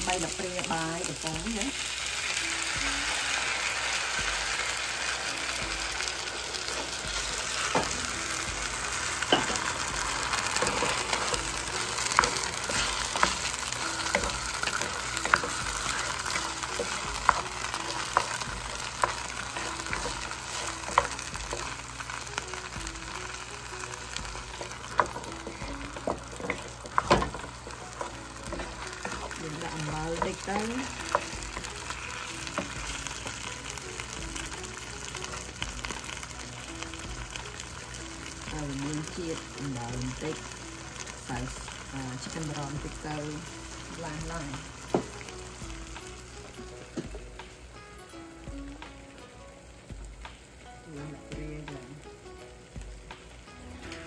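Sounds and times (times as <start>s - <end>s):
food sizzling in a pan: 0.0s - 54.0s
utensil striking a pan: 6.8s - 22.1s, 24.1s - 33.8s.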